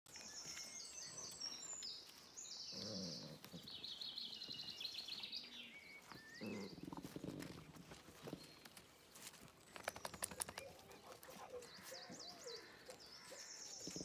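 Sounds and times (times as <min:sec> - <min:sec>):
songbirds trilling: 0:00.1 - 0:14.0
dogs growling: 0:02.7 - 0:04.0, 0:06.3 - 0:08.7.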